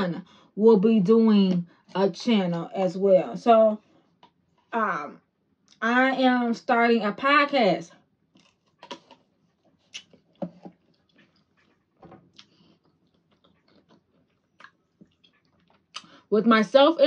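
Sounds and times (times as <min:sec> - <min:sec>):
chewing fruit: 0:08.3 - 0:16.2
wet mouth clicks and smacks: 0:08.4 - 0:09.2, 0:09.9 - 0:16.2.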